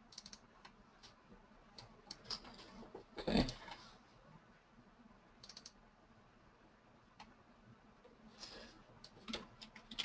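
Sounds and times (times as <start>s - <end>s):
computer mouse clicks: 0.1s - 2.6s, 5.4s - 5.8s, 9.0s - 10.0s.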